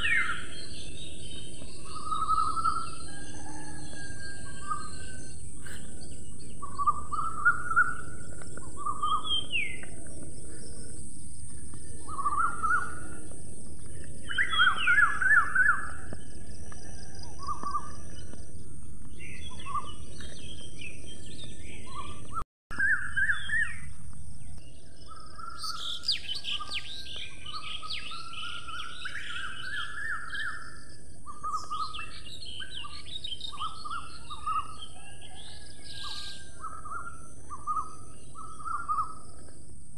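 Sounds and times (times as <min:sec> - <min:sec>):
sparrows chirping: 0:00.0 - 0:39.6.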